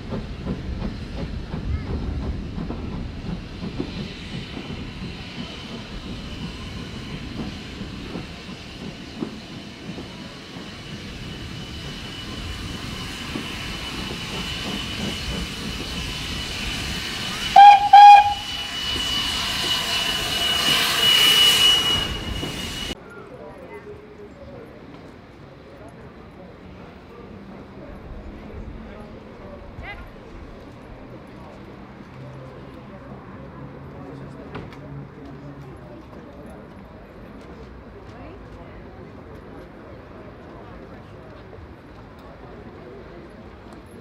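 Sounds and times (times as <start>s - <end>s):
steam train rumbling: 0.0s - 44.0s
locomotive whistle blasts: 17.4s - 23.0s.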